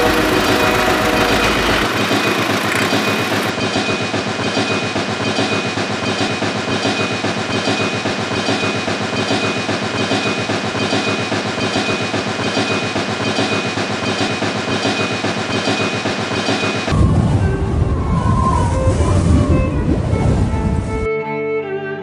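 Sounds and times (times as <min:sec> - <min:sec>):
thin motor whine: 0:00.0 - 0:03.6
toy train clattering on track: 0:00.0 - 0:16.8.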